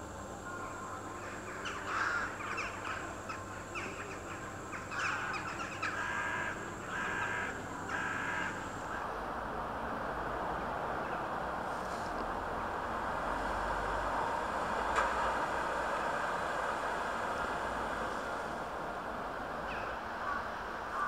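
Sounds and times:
crows cawing: 1.2s - 9.2s, 19.7s - 21.0s.

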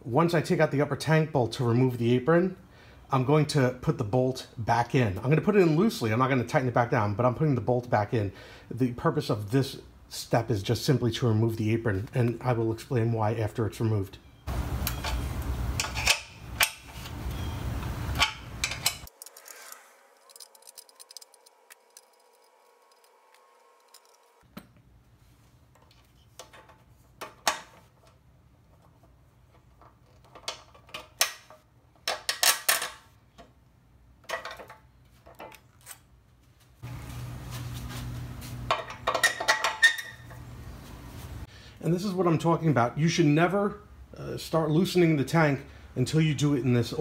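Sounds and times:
hand tools clicking on metal: 15.8s - 17.2s, 18.1s - 19.5s.

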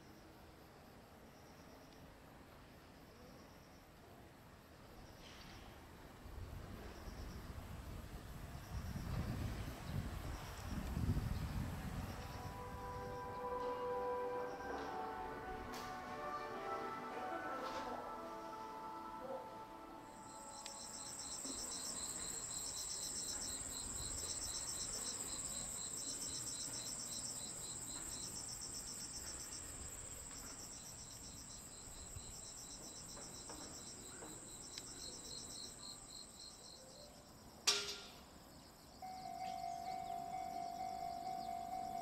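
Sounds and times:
insects buzzing and chirping: 8.2s - 15.3s, 19.9s - 42.0s.

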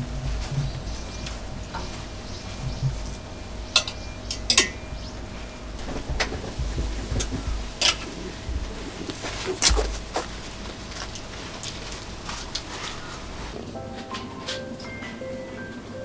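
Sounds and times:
low steady rumble: 0.0s - 12.5s.

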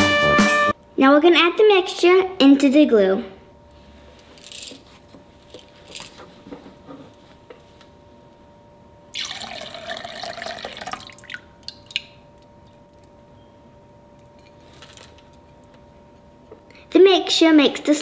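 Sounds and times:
water pouring into glass bowl: 9.2s - 12.2s
water dripping: 9.2s - 12.5s.

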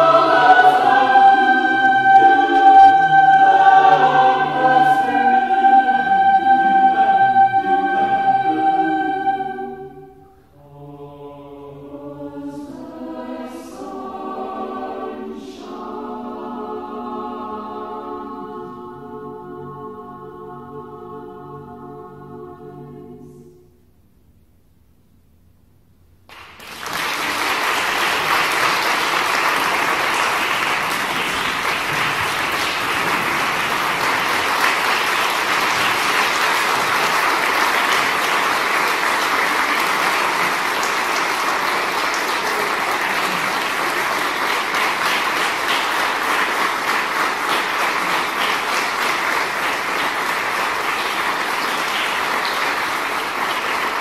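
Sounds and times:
choir final chord: 0.0s - 23.8s, 27.2s - 54.0s
audience applause: 26.3s - 54.0s.

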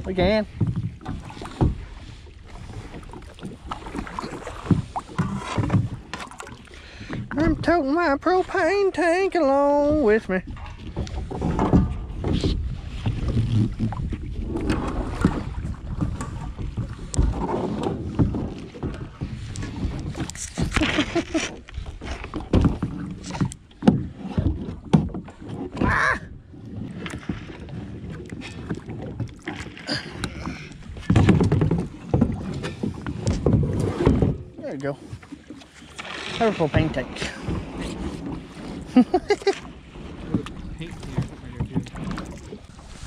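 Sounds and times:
paddle splashing in water: 0.0s - 43.0s
knocks and clunks: 10.5s - 19.4s, 28.6s - 34.6s, 40.2s - 42.5s.

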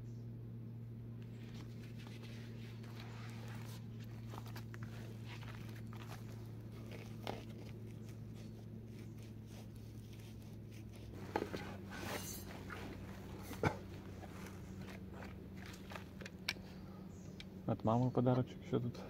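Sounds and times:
steady low hum: 0.0s - 19.0s
footsteps on forest floor: 1.3s - 16.4s
backpack rustling and knocking: 1.4s - 8.5s, 11.1s - 16.4s.

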